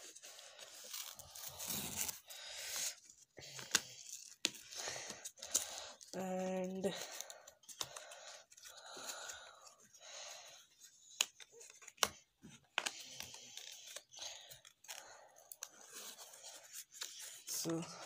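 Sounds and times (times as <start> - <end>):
packaging rustling and tearing: 0.0 - 6.2.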